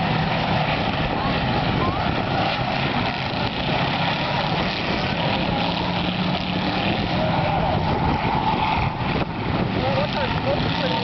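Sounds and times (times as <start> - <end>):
race car engines running: 0.0 - 11.0.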